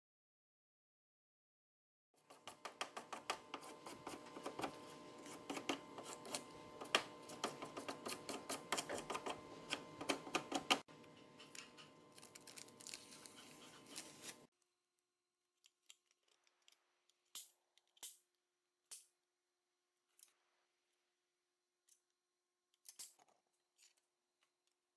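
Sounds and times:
steady hum: 2.4s - 14.5s
scratchy rubbing on masking tape: 12.5s - 14.5s.

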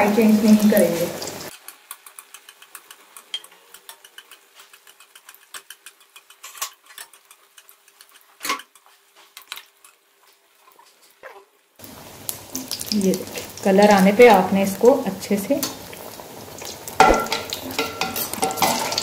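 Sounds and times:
oil crackling and popping: 0.2s - 19.0s
metal spatula knocking on pan: 17.0s - 18.8s.

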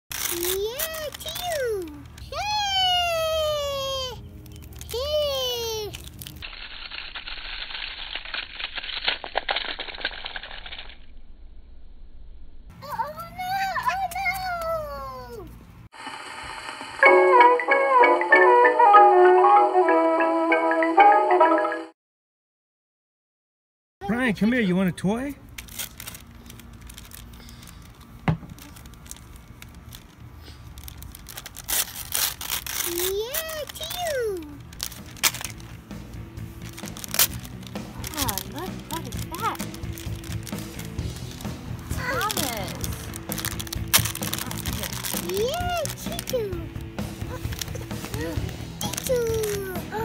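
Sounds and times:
wrapping paper crinkling: 0.1s - 10.8s, 25.5s - 50.0s.

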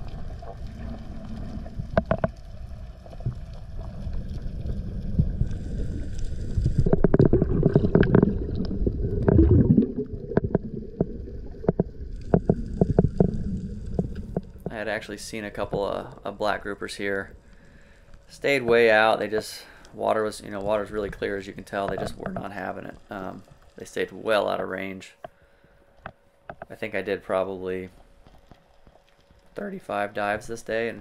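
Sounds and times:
underwater rush and gurgle: 0.0s - 19.5s
sharp underwater clicks: 6.1s - 14.8s.

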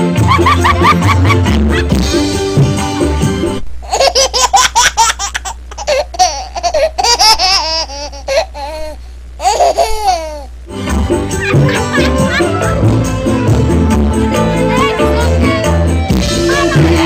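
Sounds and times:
music: 0.0s - 3.6s, 10.7s - 17.0s
baby laughing: 3.8s - 10.5s, 11.3s - 12.9s.

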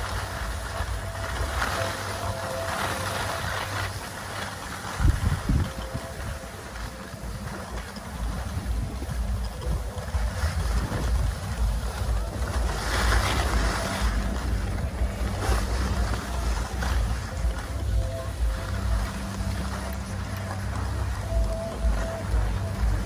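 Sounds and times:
skis hissing on snow: 0.0s - 23.0s
wind buffeting microphone: 0.0s - 23.0s.

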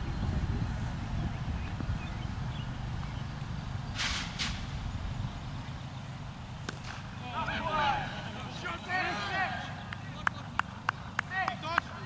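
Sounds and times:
wind buffeting microphone: 0.0s - 7.2s
hissy bursts: 4.0s - 4.7s.

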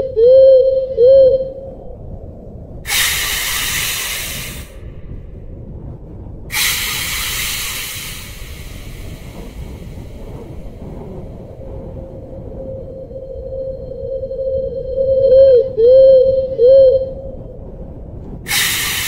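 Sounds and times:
low steady rumble: 0.0s - 19.0s
long hisses: 2.9s - 5.0s, 6.5s - 11.0s, 18.5s - 19.0s.

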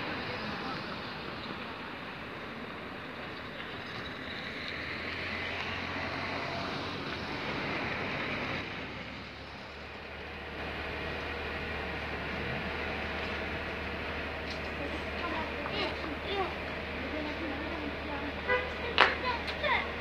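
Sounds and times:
street traffic passing: 0.0s - 20.0s.

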